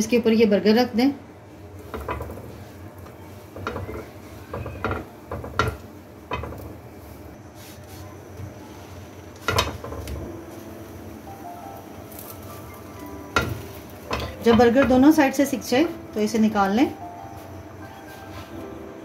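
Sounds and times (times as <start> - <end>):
bread buns knocking on iron pan: 3.5 - 6.8, 9.4 - 10.3, 13.3 - 16.0.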